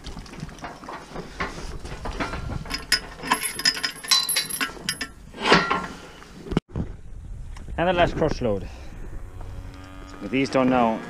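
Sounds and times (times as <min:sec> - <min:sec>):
gate chain rattling and clinking: 0:01.9 - 0:05.9.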